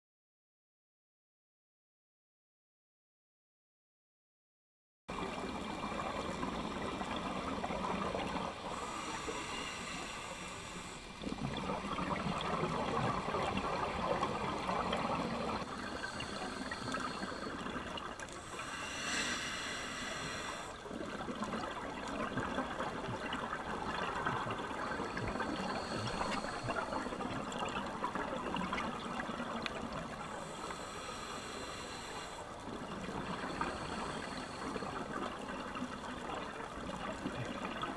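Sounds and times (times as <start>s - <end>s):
louder hissing: 18.5s - 20.7s.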